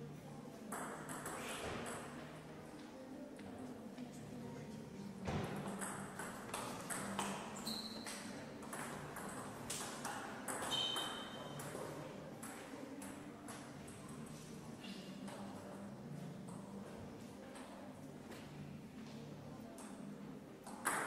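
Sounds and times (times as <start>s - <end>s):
shoe squeaks: 7.6s - 8.3s, 10.6s - 11.5s.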